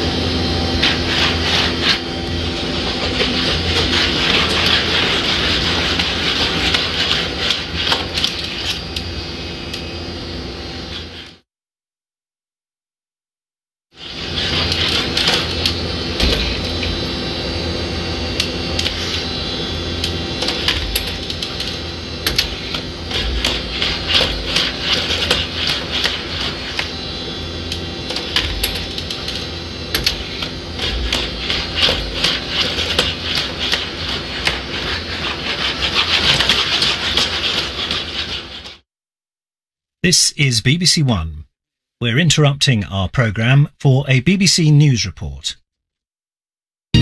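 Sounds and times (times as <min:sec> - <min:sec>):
electric motors whirring: 0:00.0 - 0:11.4, 0:14.0 - 0:38.8.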